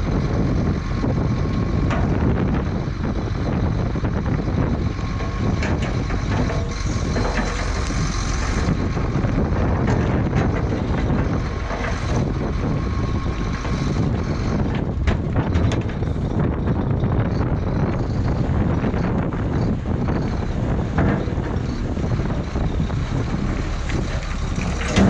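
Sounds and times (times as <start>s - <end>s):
diesel truck engine running: 0.0s - 25.0s
rock and dirt tipping out: 17.4s - 25.0s.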